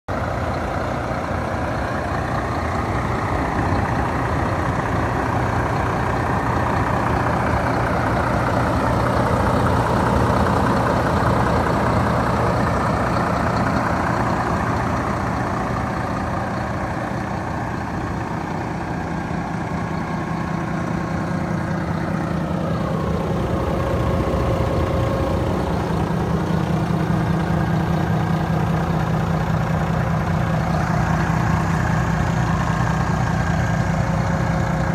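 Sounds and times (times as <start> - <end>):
diesel truck engine idling: 0.1 - 34.9.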